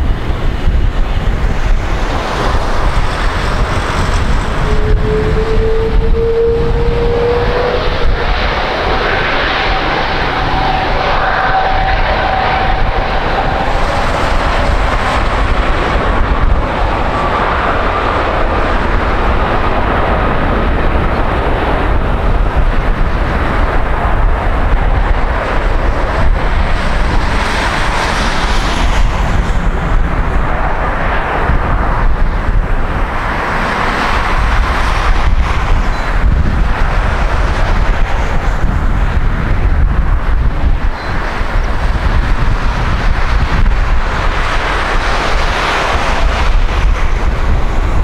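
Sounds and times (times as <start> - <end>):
jet engines rumbling: 0.0 - 48.0
wind buffeting microphone: 0.0 - 48.0
faint rising engine whine: 3.4 - 22.2.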